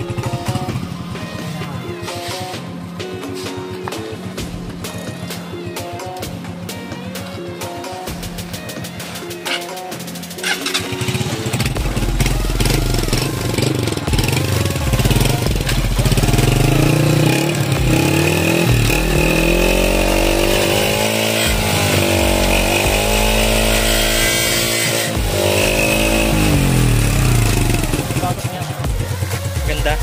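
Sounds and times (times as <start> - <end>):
motorcycle engine revving: 0.0 - 1.5, 9.4 - 30.0.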